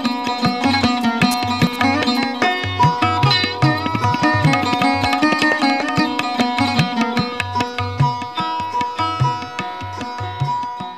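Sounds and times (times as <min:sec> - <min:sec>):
tabla strokes: 0:00.0 - 0:10.9.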